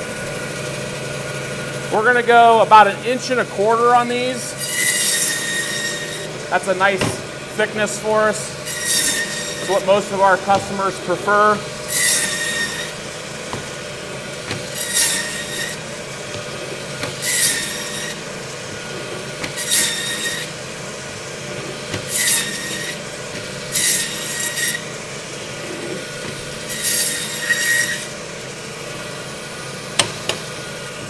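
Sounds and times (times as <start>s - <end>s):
band saw running: 0.0s - 31.0s
saw blade squealing through bone: 4.6s - 6.3s, 8.6s - 13.0s, 14.7s - 15.8s, 17.2s - 18.2s, 22.1s - 23.0s, 25.7s - 28.1s.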